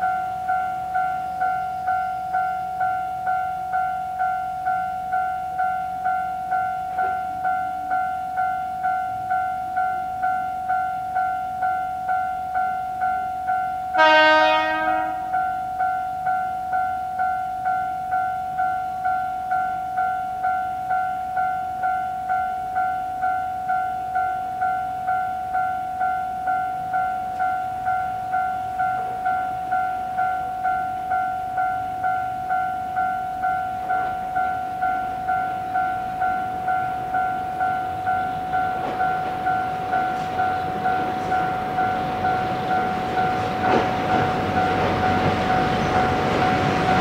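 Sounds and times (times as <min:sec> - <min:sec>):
level crossing warning bell: 0:00.0 - 0:47.0
diesel locomotive horn: 0:14.0 - 0:15.4.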